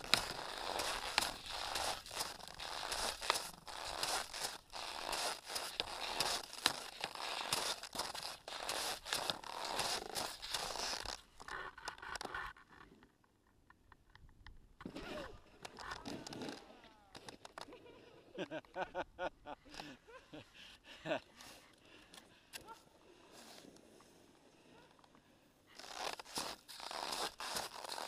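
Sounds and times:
snow crunching against camera: 0.0 - 12.2, 25.7 - 28.0.

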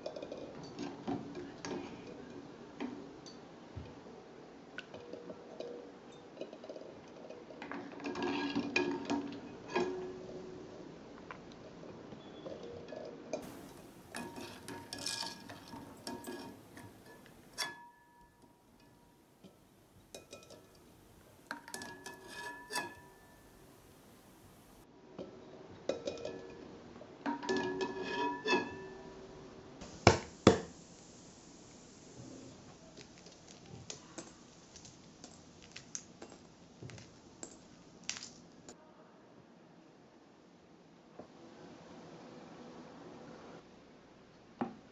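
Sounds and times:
ladle clinking against a pot: 13.4 - 24.6
eggshells crackling: 29.8 - 37.2.

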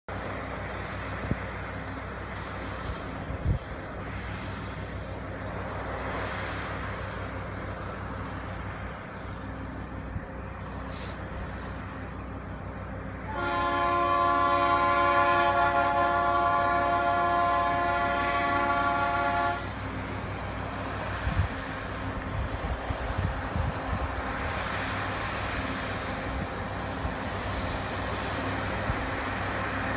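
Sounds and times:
diesel locomotive rumbling: 0.1 - 29.9
locomotive horn blast: 13.2 - 19.8.

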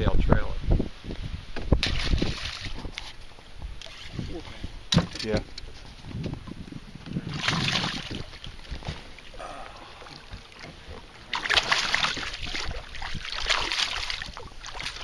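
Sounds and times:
fish thrashing and splashing: 1.8 - 3.0, 7.3 - 15.0.

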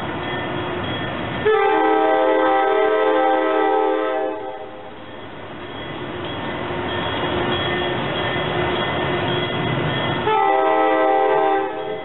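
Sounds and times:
train rumbling: 0.0 - 12.0
locomotive air horn chord: 1.4 - 4.8, 10.2 - 12.0.

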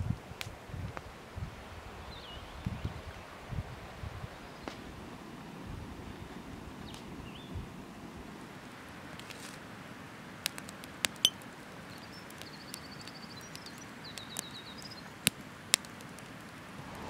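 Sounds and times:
campfire crackling: 4.6 - 17.0.

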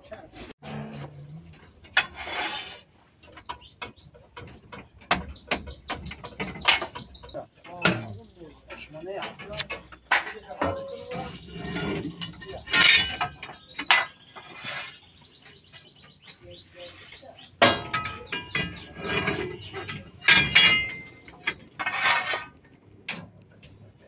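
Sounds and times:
metal grating scrape: 0.4 - 3.0, 9.3 - 15.2, 16.8 - 22.6
metal leaf springs clinking: 8.7 - 14.2, 17.6 - 22.4.

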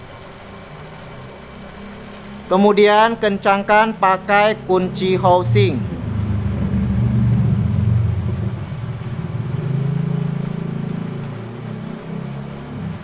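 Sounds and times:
low motor rumble: 0.0 - 13.0.

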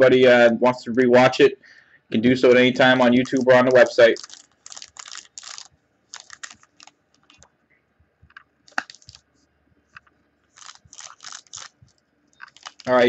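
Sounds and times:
foil wrapper crinkling: 3.1 - 7.5, 8.7 - 9.2, 10.5 - 13.0.

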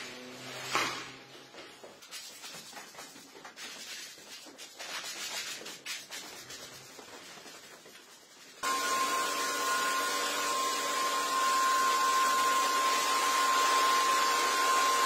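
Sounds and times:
squeegee scraping wet floor: 0.0 - 8.8.

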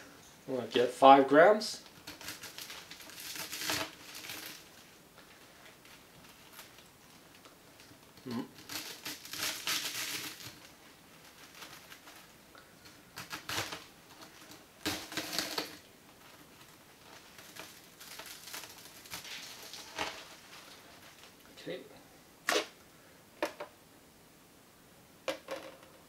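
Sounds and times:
brittle crackling and crunching: 1.8 - 21.4.

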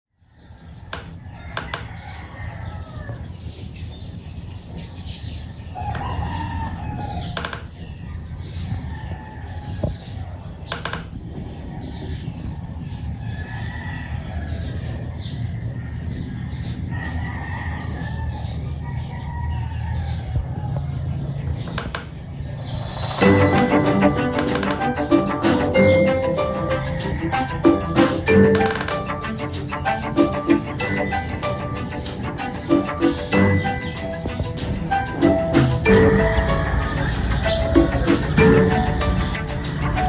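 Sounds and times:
roosters crowing: 0.7 - 3.8, 5.4 - 7.8, 8.5 - 11.1, 11.7 - 40.0
sharp clicks: 7.4 - 7.8, 10.7 - 11.2, 21.7 - 22.2, 23.1 - 25.1, 28.5 - 29.2.

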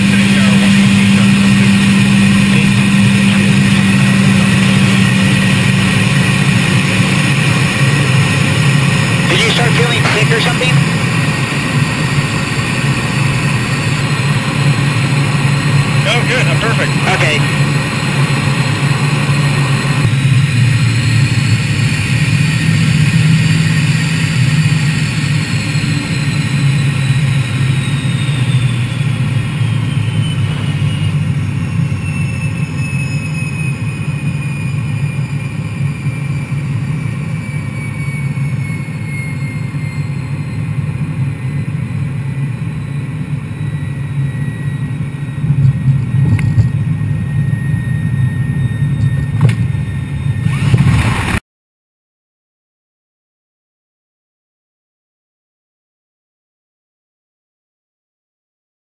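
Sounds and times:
jet engine rumble and whine: 0.0 - 51.4.

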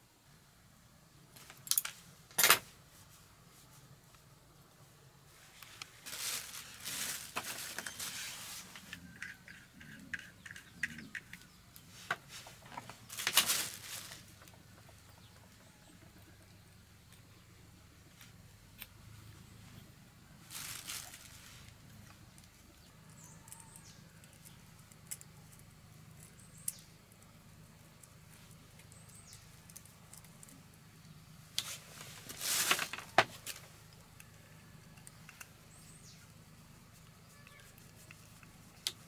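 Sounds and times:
plastic bag crinkling: 6.0 - 8.8, 12.8 - 14.5, 20.5 - 21.8, 31.7 - 33.6.

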